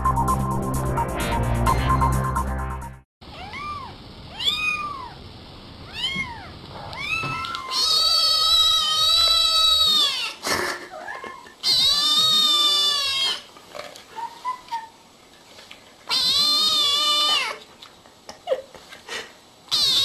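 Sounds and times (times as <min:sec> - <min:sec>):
electronic music: 0:00.0 - 0:03.0
cat meowing: 0:03.3 - 0:05.2, 0:05.9 - 0:10.4, 0:16.1 - 0:17.6.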